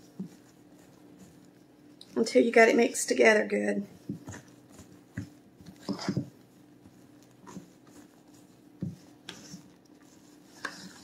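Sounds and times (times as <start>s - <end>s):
utensil scraping metal bowl: 9.2s - 11.0s.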